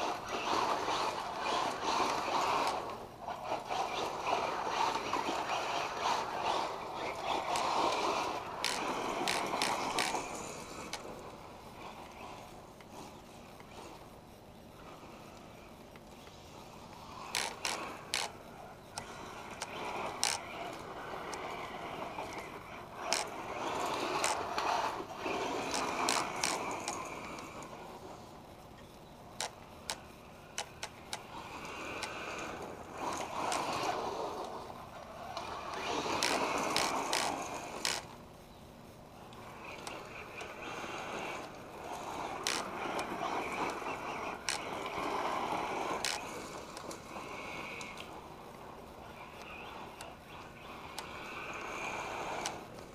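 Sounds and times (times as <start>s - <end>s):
rc car tyres churning gravel: 0.0s - 38.4s, 39.2s - 52.9s
sharp clicks: 3.8s - 11.4s, 15.3s - 27.7s, 28.7s - 34.5s, 35.3s - 38.2s, 39.3s - 45.1s.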